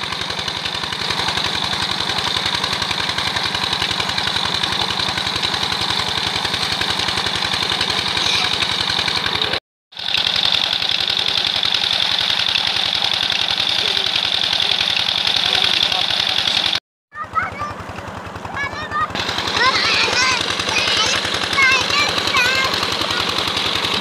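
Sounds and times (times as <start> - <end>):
pump engine running: 0.0 - 24.0
water gushing into a tank: 0.0 - 24.0.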